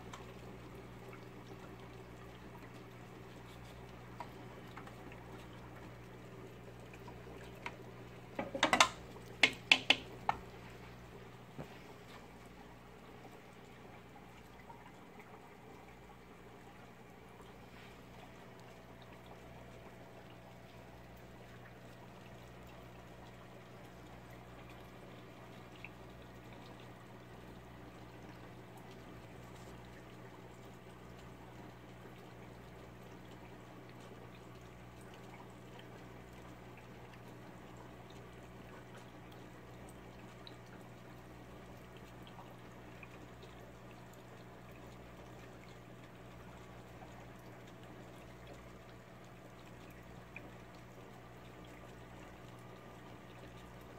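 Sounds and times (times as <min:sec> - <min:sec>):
aquarium filter water trickling: 0:00.0 - 0:53.9
low steady hum: 0:00.0 - 0:53.9
small tick: 0:00.1 - 0:00.3.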